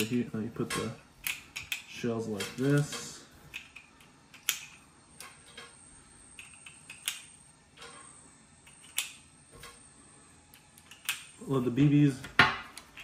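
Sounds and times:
shell casings clicking: 1.2 - 5.3, 6.4 - 7.4, 8.6 - 9.2, 10.5 - 11.3.

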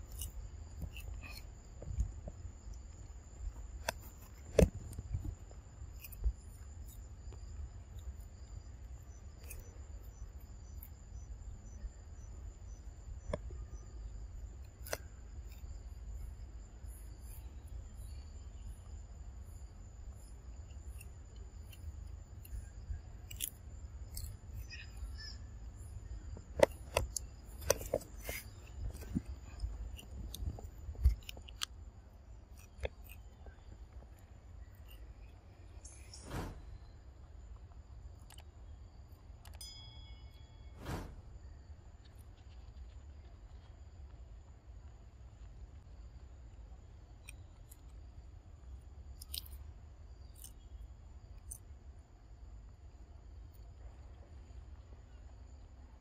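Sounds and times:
insects singing: 0.0 - 37.2
monkey chewing raw vegetables: 26.6 - 31.7.

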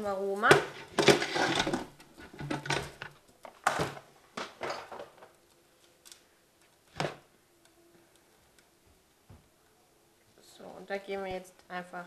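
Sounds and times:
plastic knocks and clatters: 0.5 - 5.4.

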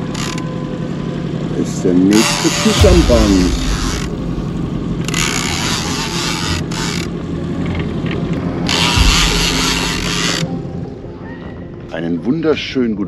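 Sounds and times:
fishing reel drag ratcheting: 0.0 - 0.5, 2.1 - 4.1, 5.0 - 7.8, 8.6 - 10.5.

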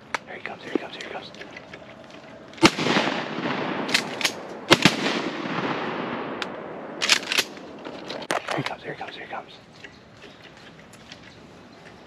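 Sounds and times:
shotgun blasts with echo: 2.6 - 7.6.

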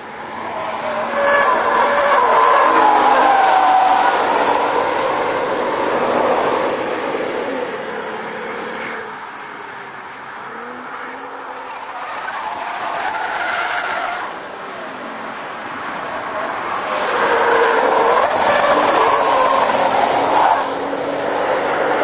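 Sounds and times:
tyre and road noise: 0.0 - 22.0.

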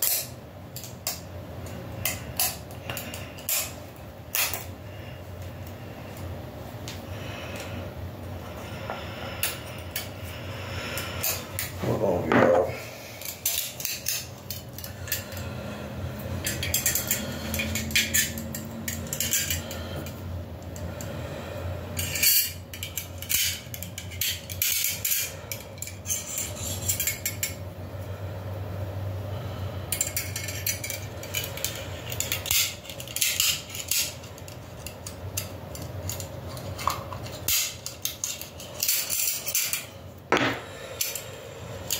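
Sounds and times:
magazine parts clicking and scraping: 16.4 - 20.9, 30.0 - 39.9.

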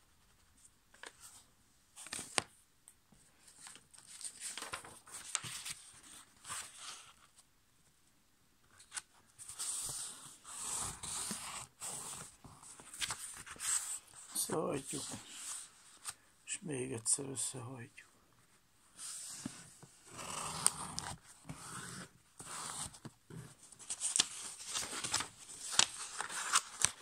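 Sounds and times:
paper rustling and crinkling: 3.4 - 7.4, 8.7 - 16.2, 22.5 - 27.0.

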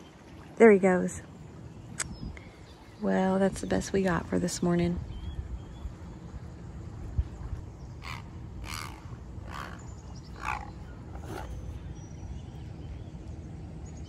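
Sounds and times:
water: 0.0 - 14.0
wind: 0.0 - 14.0
bird giving harsh scratchy calls: 8.0 - 11.8
small birds chirping: 8.0 - 13.2.

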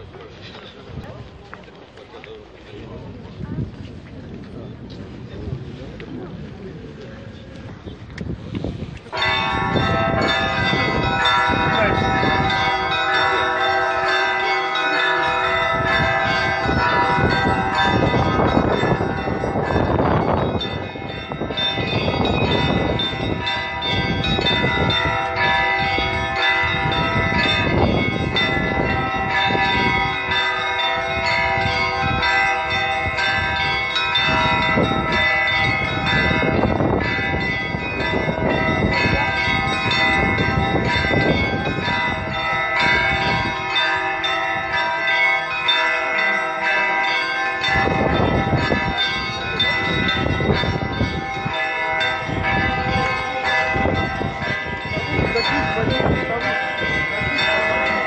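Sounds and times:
church bells ringing: 8.4 - 58.0
deep bell strokes: 9.0 - 58.0.

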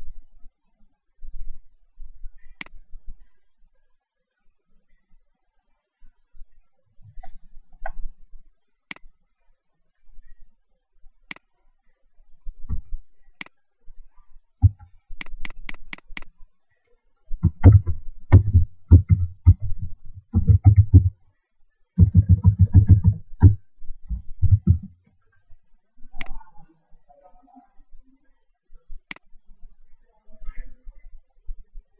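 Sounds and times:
computer mouse clicking: 14.6 - 16.3, 20.4 - 21.1
typing on computer keyboard: 20.4 - 21.1.

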